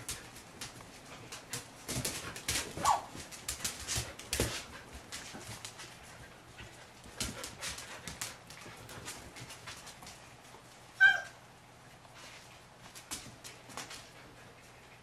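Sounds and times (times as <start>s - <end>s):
puppy yelping: 11.0s - 11.4s.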